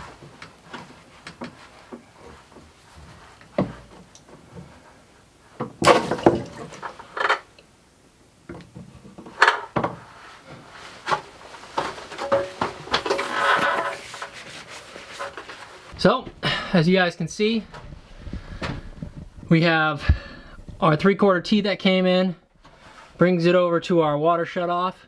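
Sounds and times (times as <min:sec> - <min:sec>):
knocks and clatter on pipes: 0:11.8 - 0:14.3.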